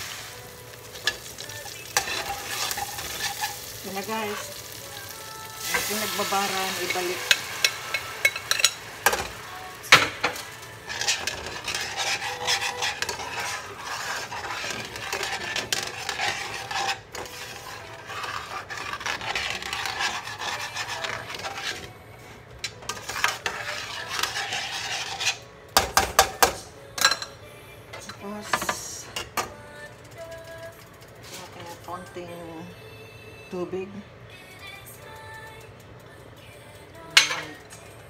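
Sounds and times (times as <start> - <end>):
spatula scraping a metal pot: 1.0 - 4.5, 5.6 - 22.0, 22.7 - 26.3.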